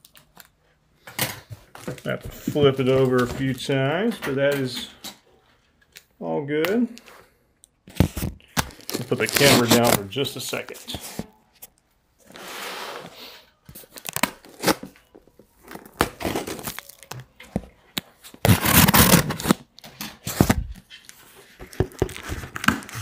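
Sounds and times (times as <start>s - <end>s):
cardboard tearing: 8.0s - 10.0s, 14.0s - 14.9s, 15.6s - 17.2s, 18.4s - 19.6s, 21.9s - 23.0s.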